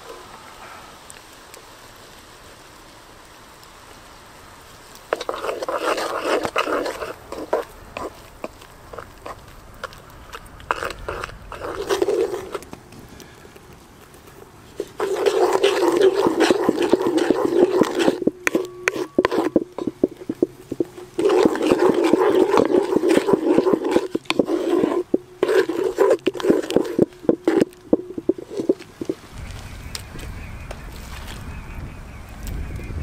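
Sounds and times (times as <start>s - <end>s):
onions frying in fat: 0.0s - 30.3s
wooden spoon scraping metal pot: 5.0s - 12.7s, 14.0s - 29.3s.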